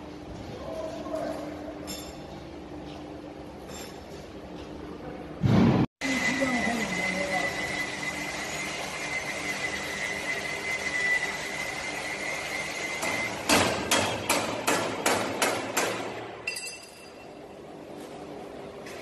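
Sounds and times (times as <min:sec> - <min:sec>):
high-pitched whine: 0:06.0 - 0:13.3
hammer striking steel: 0:13.0 - 0:17.2.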